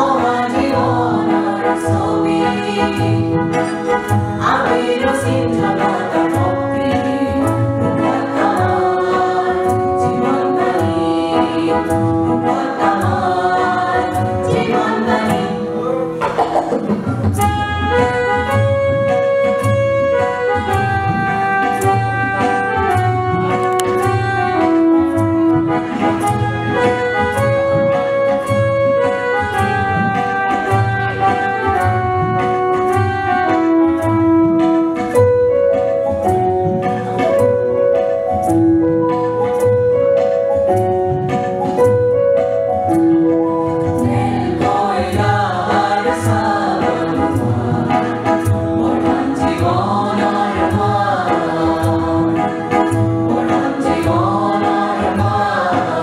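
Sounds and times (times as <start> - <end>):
group singing together: 0.0 - 17.6, 43.9 - 56.0
keyboard melody over beat: 0.0 - 56.0.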